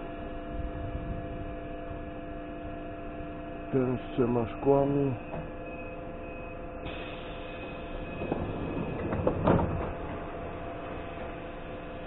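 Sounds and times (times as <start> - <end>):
electric train hum: 0.0 - 12.0
clunks and knocks: 8.2 - 11.3.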